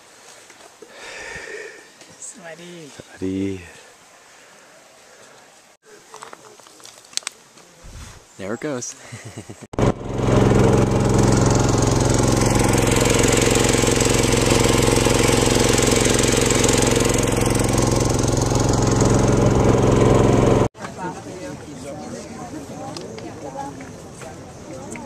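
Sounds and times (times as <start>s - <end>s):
boat engine droning: 9.8s - 20.7s.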